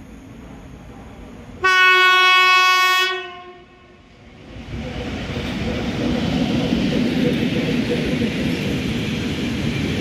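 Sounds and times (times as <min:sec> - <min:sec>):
train rumbling and rolling: 0:00.0 - 0:10.0
locomotive horn blast: 0:01.6 - 0:04.0.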